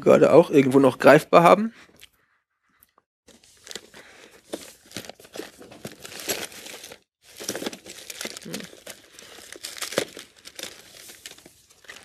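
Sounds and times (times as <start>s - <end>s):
crinkling and rustling: 3.3s - 12.0s.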